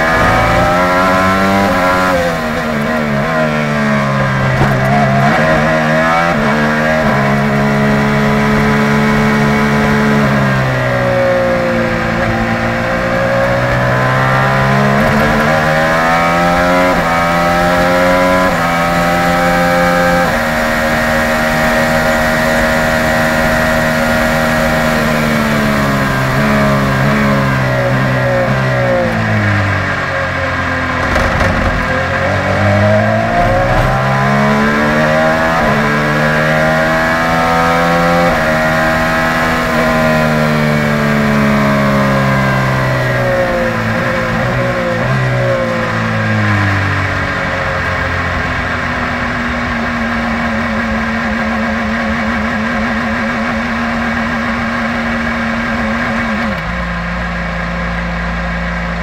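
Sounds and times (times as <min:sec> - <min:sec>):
race car engine shifting gears: 0:00.0 - 0:46.7.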